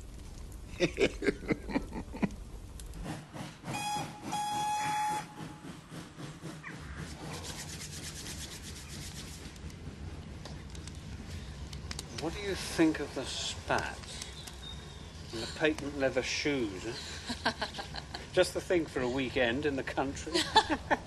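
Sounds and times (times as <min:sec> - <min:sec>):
steam hissing: 0:02.9 - 0:10.4, 0:11.0 - 0:21.0
steam locomotive whistle: 0:03.7 - 0:05.9.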